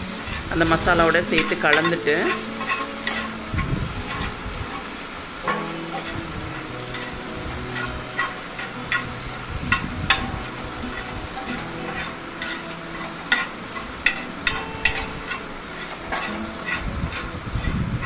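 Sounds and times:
masala sizzling on griddle: 0.0 - 18.0
metal spatula scraping stone: 0.2 - 18.0.

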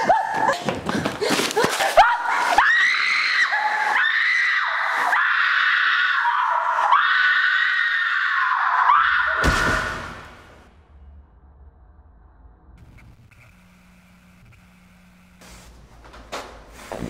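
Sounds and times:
woman screaming: 2.0 - 9.4.

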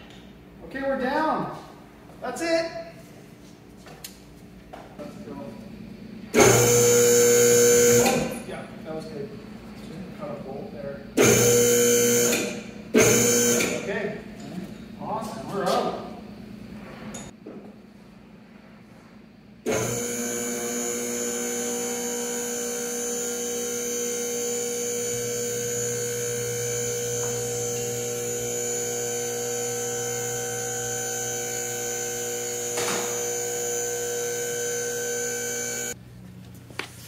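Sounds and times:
electric pump motor whining: 6.3 - 8.5, 11.2 - 14.0, 19.6 - 36.0.

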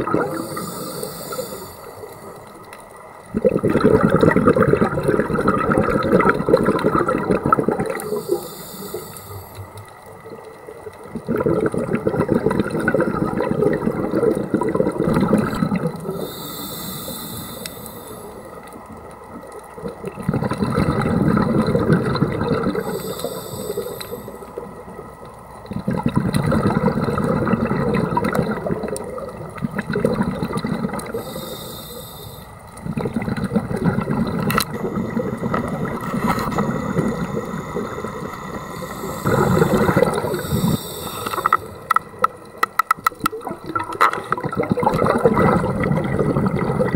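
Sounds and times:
exhaled bubbles rushing: 0.0 - 2.4, 3.2 - 8.2, 10.8 - 16.2, 19.7 - 23.8, 25.6 - 31.3, 32.8 - 46.9
diver inhaling through regulator: 0.1 - 2.5, 7.6 - 9.8, 16.0 - 18.7, 22.6 - 24.6, 31.0 - 32.6, 34.3 - 42.3.

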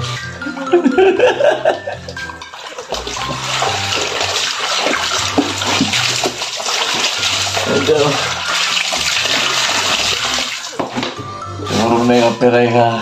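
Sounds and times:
running water: 2.0 - 12.2.

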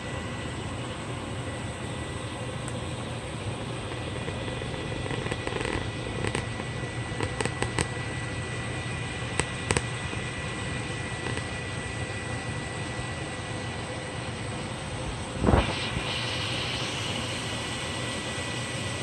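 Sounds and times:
steady hum: 0.0 - 19.0
oil popping and crackling: 3.7 - 8.4, 9.2 - 11.6.

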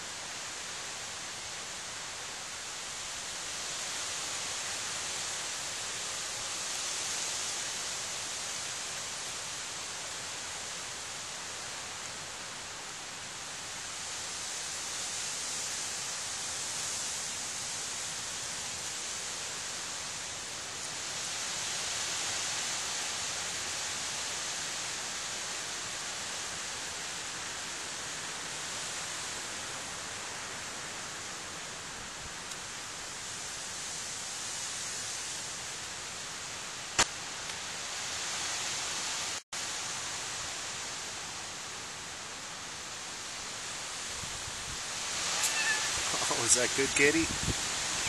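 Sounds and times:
steady background hiss: 0.0 - 48.0.

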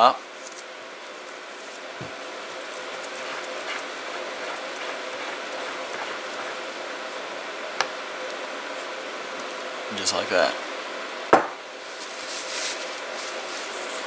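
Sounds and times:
steady background hum: 0.0 - 14.0.

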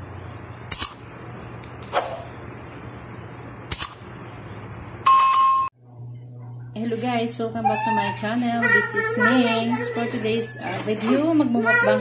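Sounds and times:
bell ding: 5.1 - 5.7.

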